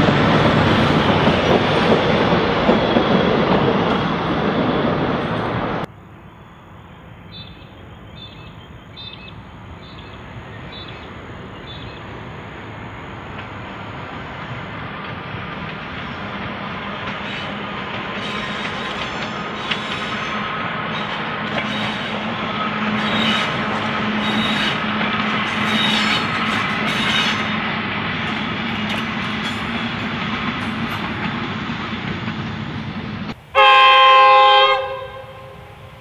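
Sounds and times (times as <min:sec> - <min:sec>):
railcar engine droning: 0:00.0 - 0:36.0
train horn blast: 0:33.5 - 0:36.0.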